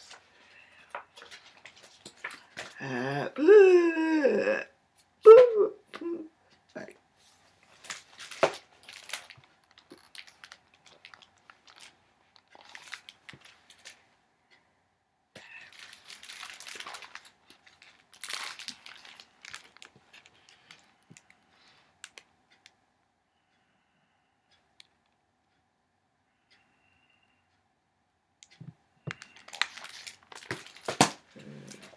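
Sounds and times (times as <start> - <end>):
paper rustling: 7.2 - 14.0, 15.6 - 20.8
book pages turning: 7.3 - 14.0, 15.8 - 20.8, 29.1 - 31.9.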